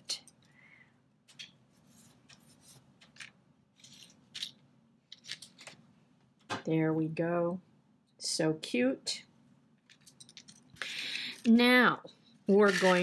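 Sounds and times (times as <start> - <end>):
rustling and scraping handling noises: 1.3 - 5.9, 9.9 - 13.0.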